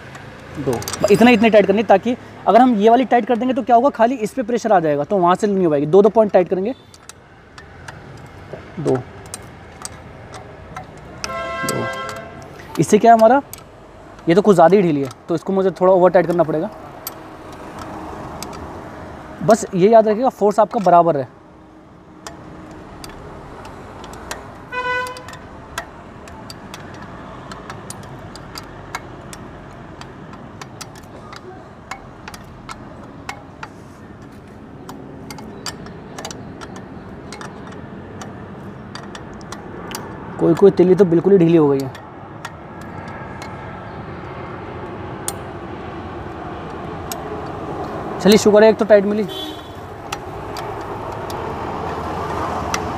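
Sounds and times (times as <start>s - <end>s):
spoke wrench clicks: 0.0s - 21.2s, 22.2s - 52.9s
traffic noise: 0.0s - 52.9s
vehicle background noise: 0.0s - 52.9s
vehicle horn toot: 11.2s - 12.4s, 24.7s - 25.3s, 49.2s - 49.9s.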